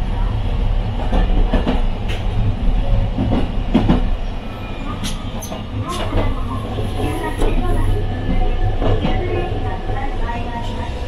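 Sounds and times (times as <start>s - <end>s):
streetcar low rumble: 0.0s - 11.0s.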